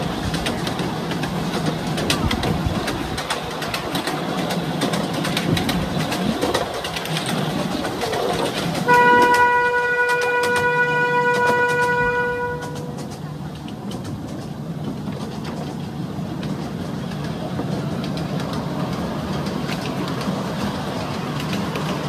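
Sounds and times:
train wheels clicking over rails: 0:00.0 - 0:22.0
steady horn tone: 0:08.9 - 0:12.9.

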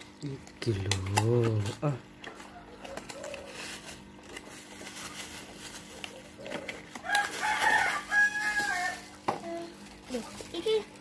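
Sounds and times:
cardboard and plastic rustling: 0:00.4 - 0:11.0
rooster crowing: 0:06.9 - 0:09.1.

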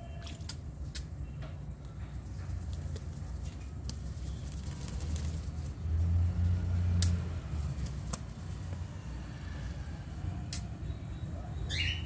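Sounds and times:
parakeet chirp: 0:10.9 - 0:12.0.

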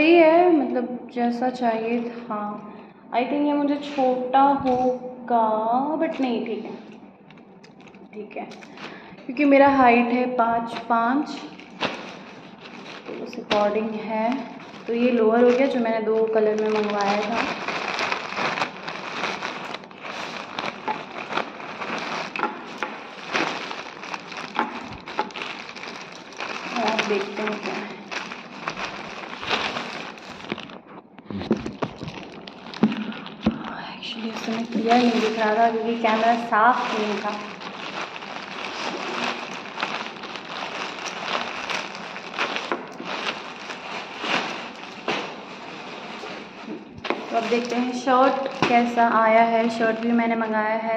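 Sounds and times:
plastic bag crinkling: 0:06.1 - 0:09.5, 0:10.4 - 0:50.9.

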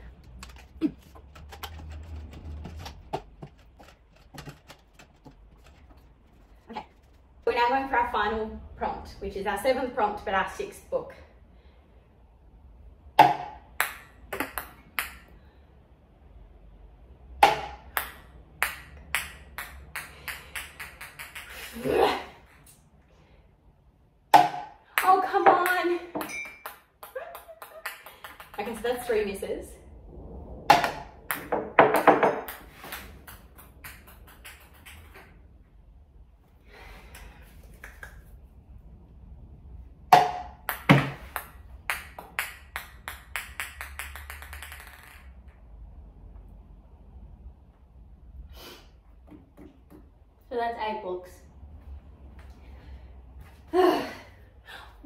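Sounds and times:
ping pong ball bouncing on table: 0:13.2 - 0:15.3, 0:17.4 - 0:21.5, 0:24.4 - 0:28.8, 0:30.7 - 0:35.2, 0:40.1 - 0:45.2.

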